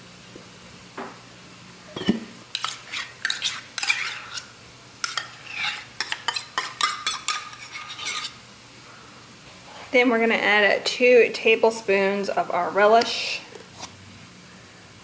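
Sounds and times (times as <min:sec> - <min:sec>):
metal spoon clinking and scraping: 0:02.0 - 0:08.4.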